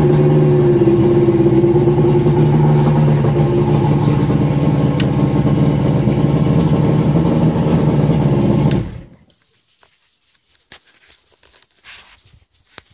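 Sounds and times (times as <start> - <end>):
outboard motor running: 0.0 - 9.2
handling noises: 9.3 - 12.9.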